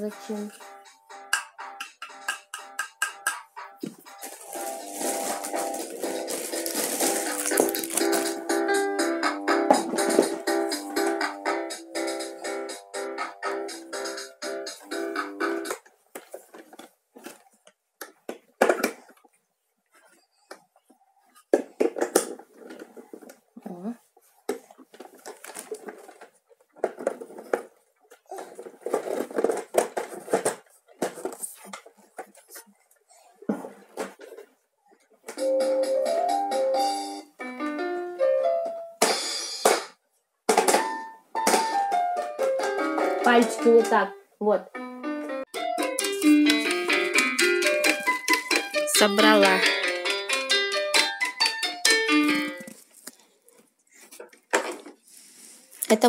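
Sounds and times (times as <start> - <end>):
plastic parts clicking and knocking: 15.6 - 19.4, 21.4 - 23.4, 24.5 - 32.6, 40.5 - 44.0, 45.6 - 53.2, 54.1 - 55.0
plastic clatter: 15.7 - 19.4, 21.4 - 23.5, 24.5 - 32.6, 46.0 - 51.6, 52.6 - 55.0.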